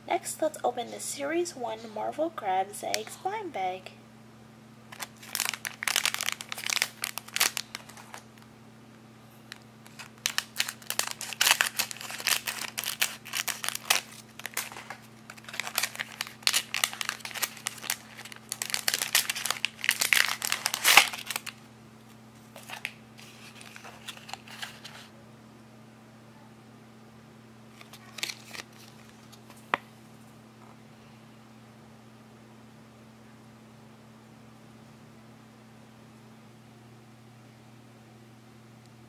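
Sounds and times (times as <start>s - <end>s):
plastic bag crinkling: 4.9s - 8.5s, 9.5s - 21.6s, 22.4s - 25.1s, 27.7s - 29.8s.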